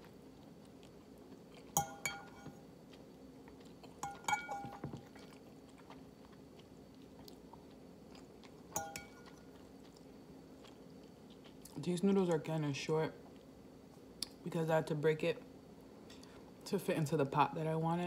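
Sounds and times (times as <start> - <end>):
metal fork clinking ceramic bowl: 1.8 - 2.6, 4.0 - 5.0, 8.8 - 9.3.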